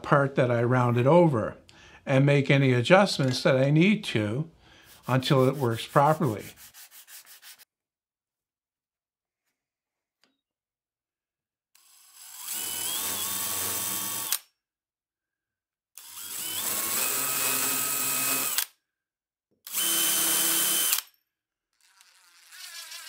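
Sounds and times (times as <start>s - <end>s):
cordless drill boring into wood: 11.8s - 14.5s, 16.0s - 18.8s, 19.6s - 21.1s, 21.8s - 23.0s.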